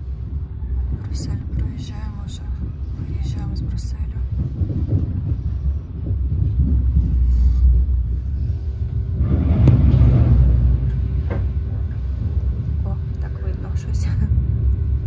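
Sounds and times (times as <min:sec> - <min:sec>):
train running on tracks: 0:00.0 - 0:15.0.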